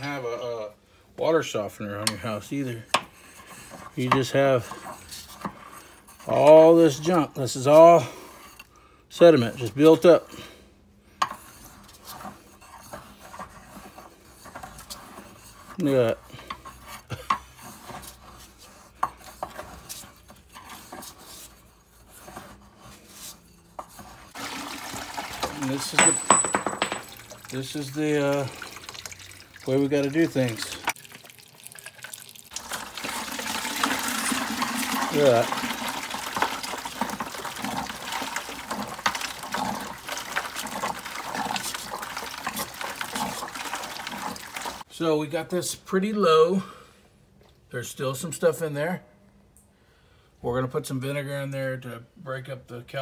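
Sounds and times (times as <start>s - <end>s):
water rushing into plastic bucket: 24.3s - 26.0s, 27.0s - 44.8s
metal tool scraping and clinking: 25.4s - 27.8s.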